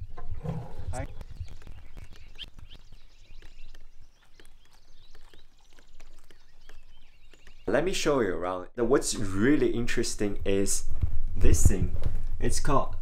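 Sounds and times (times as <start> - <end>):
soft clicks and crackles: 1.1 - 7.7.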